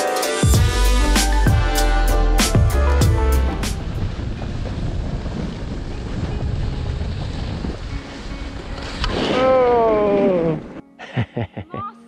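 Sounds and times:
wind buffeting microphone: 0:02.6 - 0:10.8.

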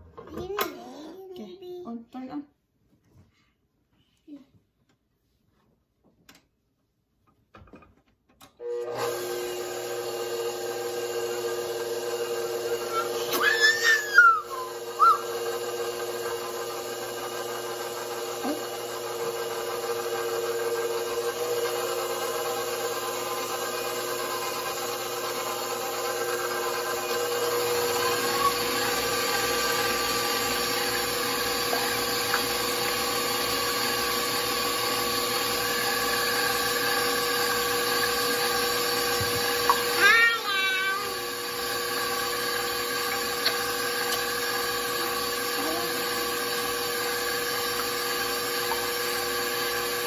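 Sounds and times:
stand mixer motor whirring: 0:08.6 - 0:50.0
whisk squeaking in bowl: 0:13.0 - 0:15.4, 0:27.9 - 0:29.1.

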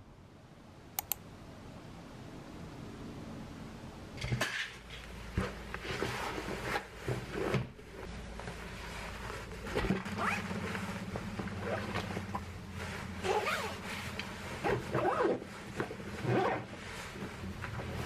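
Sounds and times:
nylon fabric rustling: 0:05.1 - 0:18.0
zipper being pulled: 0:09.7 - 0:10.5, 0:11.6 - 0:12.4, 0:13.1 - 0:18.0.

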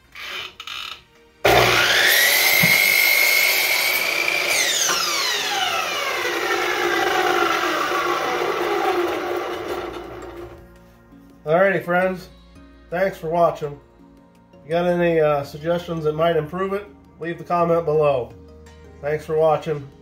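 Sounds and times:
miter saw motor whine: 0:01.4 - 0:10.6
saw blade cutting wood: 0:01.4 - 0:10.6.

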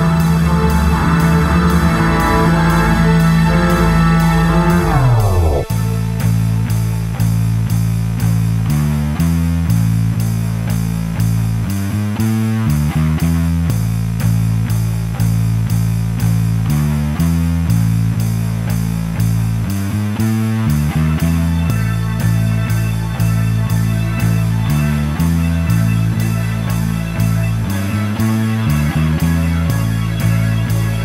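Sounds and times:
guitar-led instrumental music: 0:00.0 - 0:07.2, 0:20.3 - 0:31.0.

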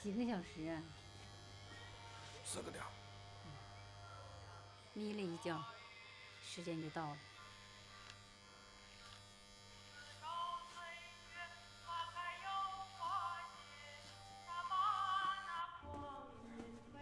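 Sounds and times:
electric hair clippers buzzing: 0:00.0 - 0:15.7.

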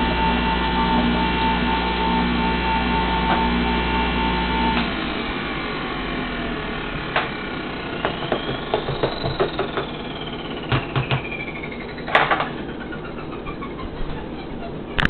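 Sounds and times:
juicer motor whining: 0:00.0 - 0:15.0
sharp clicks and knocks: 0:08.0 - 0:12.7.

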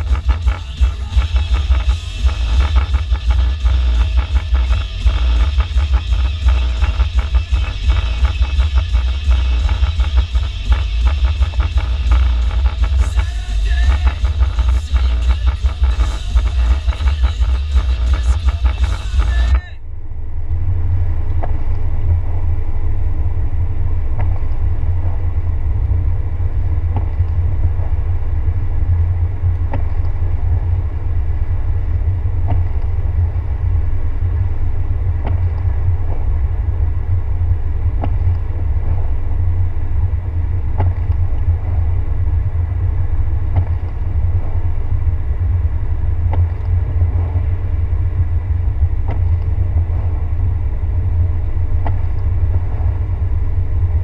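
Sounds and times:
car cabin rumble: 0:00.0 - 0:19.8.

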